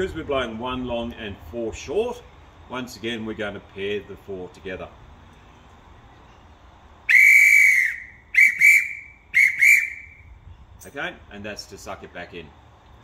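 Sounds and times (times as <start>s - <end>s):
hand whistle blasts: 7.1s - 10.3s.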